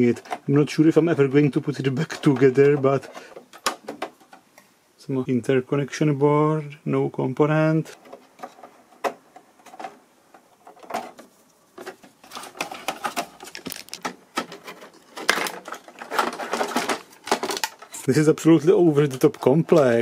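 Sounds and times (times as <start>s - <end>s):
metal panels clicking and rattling: 8.0s - 18.0s.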